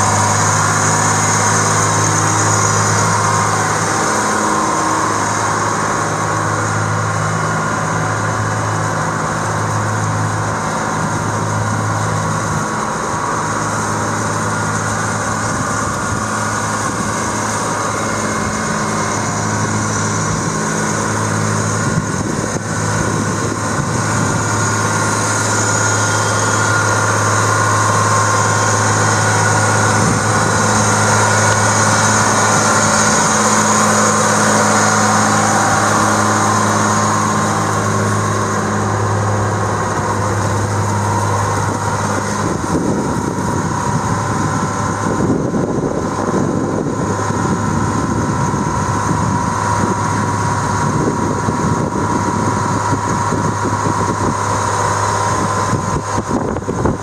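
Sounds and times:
tractor diesel engine running: 0.0 - 57.0.

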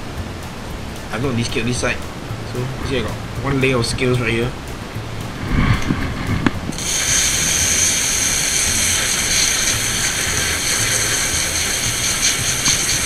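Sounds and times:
water jet spraying on fish: 6.0 - 13.0.

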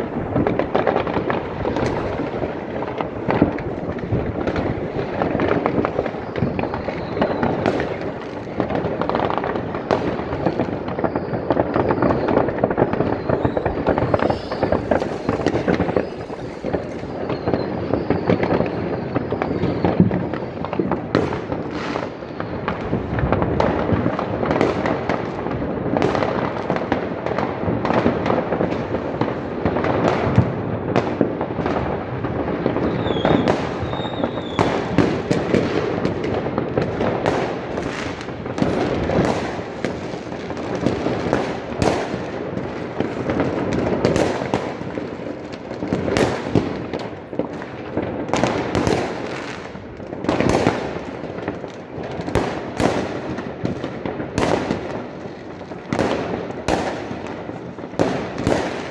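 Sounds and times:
sharp nearby firework reports: 0.0 - 25.2
fireworks banging and crackling: 0.0 - 58.9
high firework whistle: 5.5 - 8.1, 9.6 - 20.8, 32.8 - 35.4.

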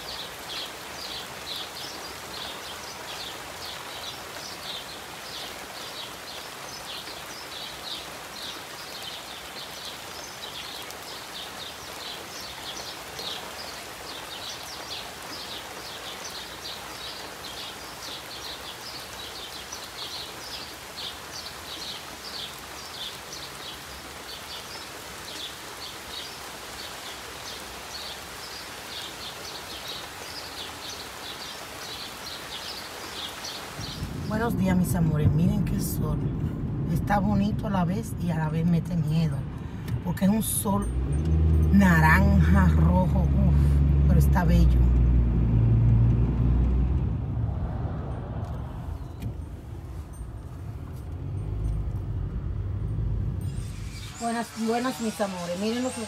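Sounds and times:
small birds chirping: 0.0 - 36.4, 48.5 - 50.2, 53.4 - 56.0
steady rain: 0.0 - 56.0.

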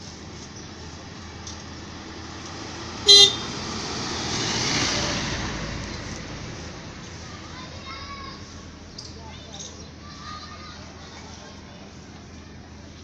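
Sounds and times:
vehicle passing: 0.0 - 8.8
vehicle horn toot: 3.0 - 3.5.

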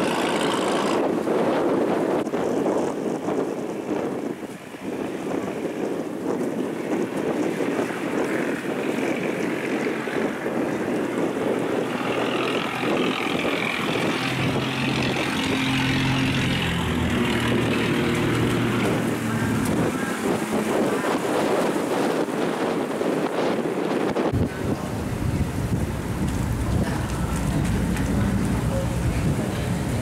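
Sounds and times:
barge diesel engine droning: 0.0 - 1.2, 11.2 - 21.4, 24.3 - 30.0
wind on microphone: 0.0 - 30.0.

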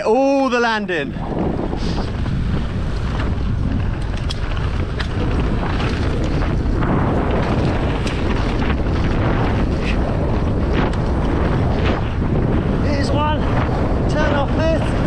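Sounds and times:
wind buffeting microphone: 0.0 - 15.0
bike tyre rumble on dirt: 0.9 - 15.0
bike clicks and rattles: 1.2 - 15.0.

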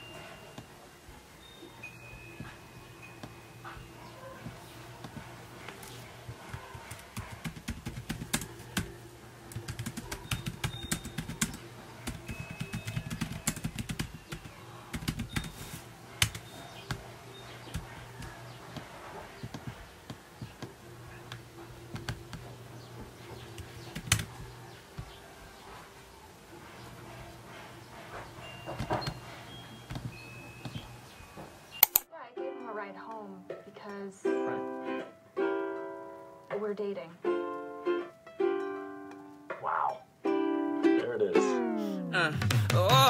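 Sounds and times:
laptop keyboard typing: 1.9 - 25.2.

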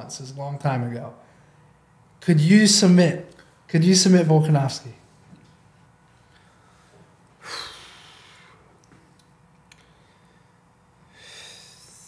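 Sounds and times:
man breathing: 6.3 - 8.8, 9.7 - 12.0.

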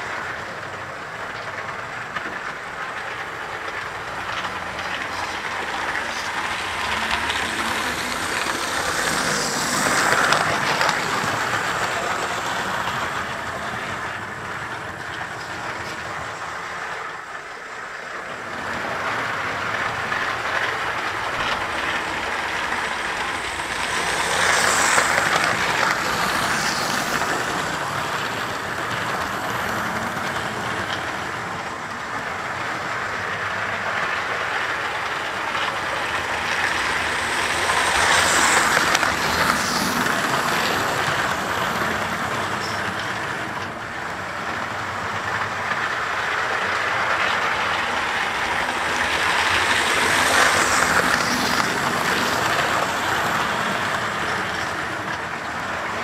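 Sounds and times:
model train wheels rumbling on rails: 0.0 - 56.0.

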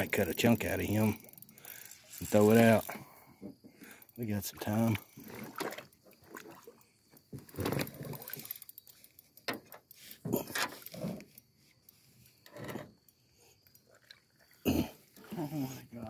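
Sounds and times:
water splashing: 4.7 - 6.8.

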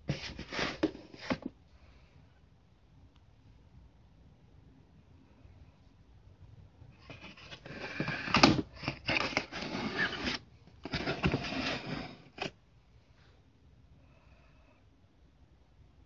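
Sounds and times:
device handling scraping: 7.0 - 12.5.

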